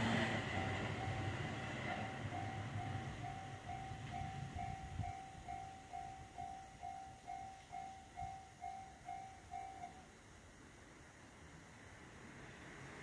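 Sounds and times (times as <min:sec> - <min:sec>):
railroad crossing bell ringing: 0:00.0 - 0:10.2
passing train rumble: 0:00.0 - 0:13.0.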